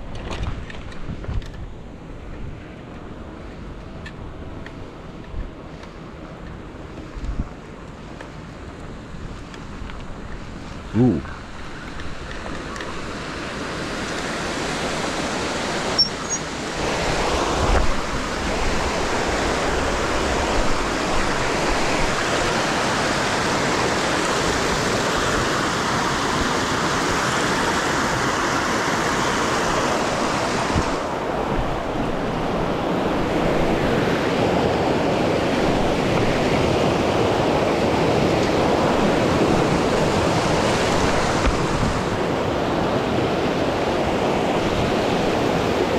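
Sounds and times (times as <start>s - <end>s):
stream rushing over boulders: 11.0s - 45.9s.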